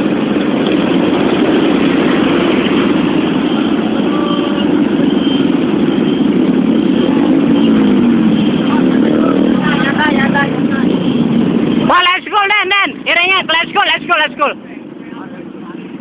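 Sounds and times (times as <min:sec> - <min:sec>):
motorcycle engine running: 0:00.0 - 0:12.0
wind rushing: 0:00.0 - 0:14.6.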